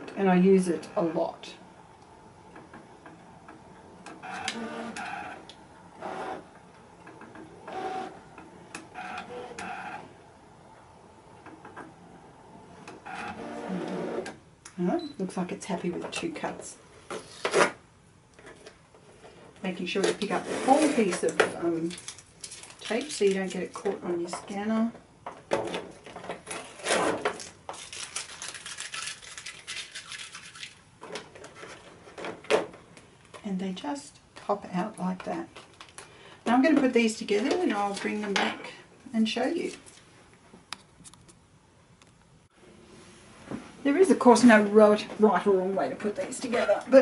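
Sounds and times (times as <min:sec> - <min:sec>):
masking tape peeled off plastic: 0:26.5 - 0:30.4.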